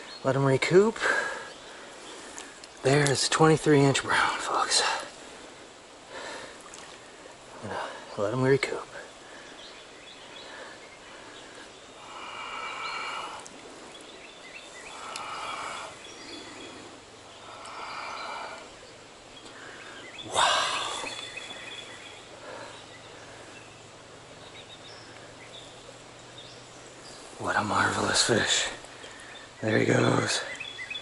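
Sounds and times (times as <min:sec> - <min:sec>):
stream water sloshing: 0:01.5 - 0:08.2.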